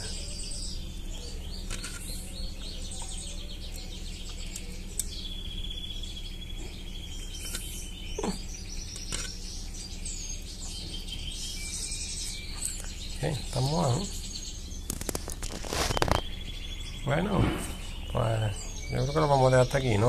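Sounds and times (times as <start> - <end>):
bird trill: 0.0 - 20.0
songbirds chirping: 0.0 - 20.0.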